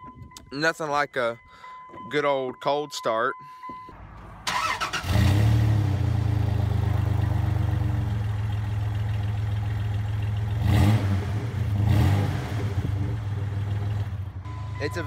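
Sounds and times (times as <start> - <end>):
pickup engine idling: 6.2 - 10.6.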